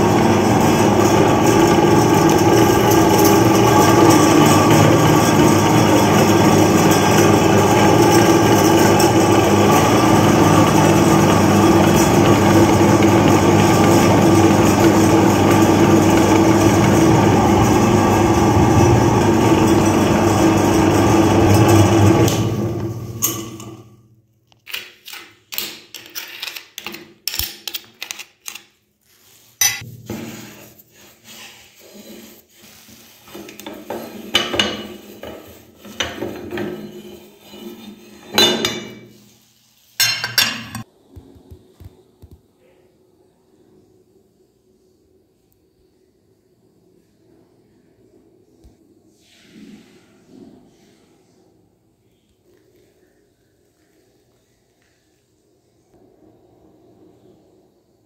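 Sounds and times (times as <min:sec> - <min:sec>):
meat grinder motor running: 0:00.0 - 0:23.5.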